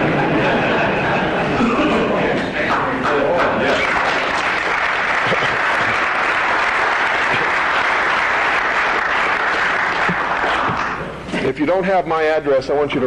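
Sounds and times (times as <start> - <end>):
audience applauding: 2.7 - 11.2.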